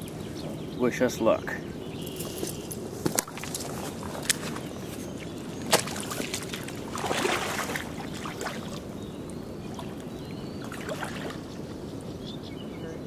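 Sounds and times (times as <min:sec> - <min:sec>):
river water swishing: 0:02.1 - 0:12.2.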